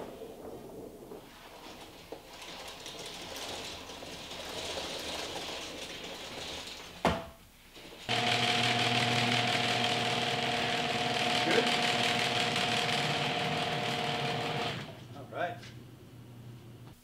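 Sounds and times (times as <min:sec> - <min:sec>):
electric motor hum: 0:08.1 - 0:16.9.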